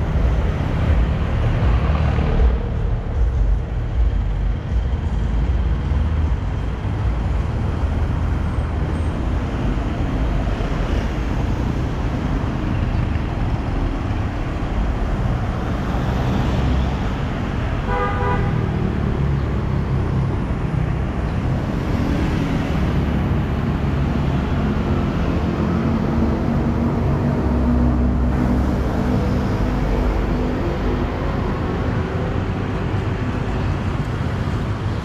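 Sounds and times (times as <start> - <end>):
road traffic passing: 0.0 - 35.0
vehicle horn toot: 17.9 - 18.6.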